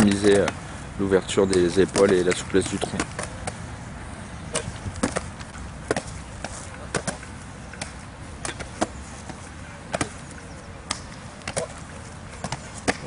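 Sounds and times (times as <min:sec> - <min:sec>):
ball slapping into hands: 0:01.4 - 0:03.6, 0:04.5 - 0:13.0.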